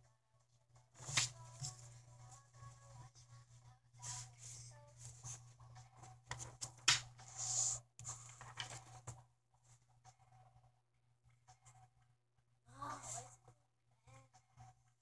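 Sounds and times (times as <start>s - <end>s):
steady low hum: 0.1s - 12.2s
rustling and handling noises: 0.9s - 10.2s.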